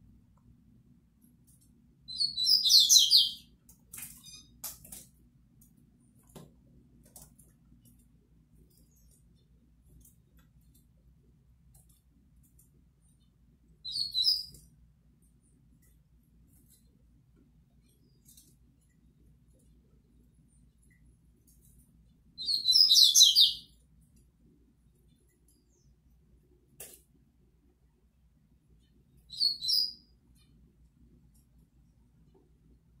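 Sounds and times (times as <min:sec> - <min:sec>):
small bird singing: 0:02.0 - 0:03.6, 0:04.2 - 0:04.6, 0:13.0 - 0:14.7, 0:22.3 - 0:23.8, 0:28.8 - 0:30.6.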